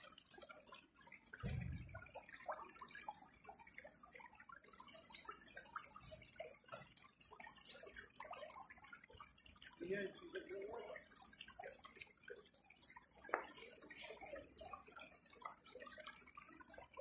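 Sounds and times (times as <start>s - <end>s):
stream trickling over stones: 0.0s - 17.0s
low thump: 1.4s - 2.0s.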